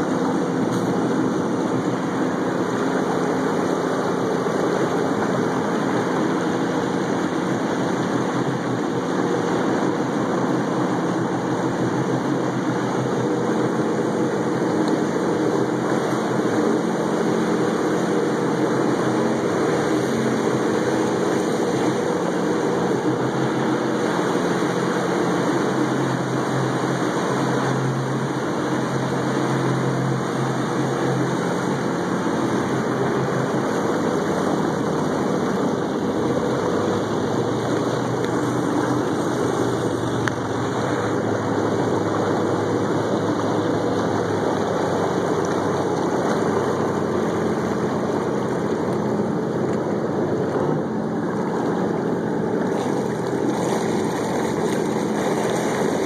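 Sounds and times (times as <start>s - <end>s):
watercraft engine running: 0.0s - 56.0s.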